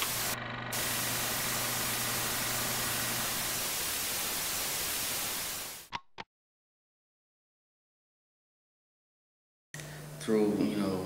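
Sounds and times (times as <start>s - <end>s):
static hiss: 0.0s - 5.9s.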